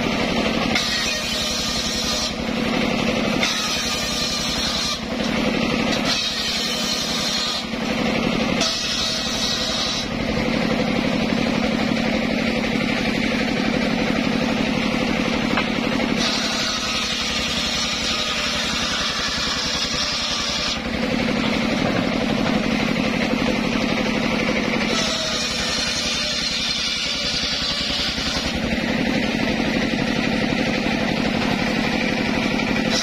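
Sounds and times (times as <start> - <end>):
saw blade cutting log: 0.0 - 33.0
sawmill engine running: 0.0 - 33.0.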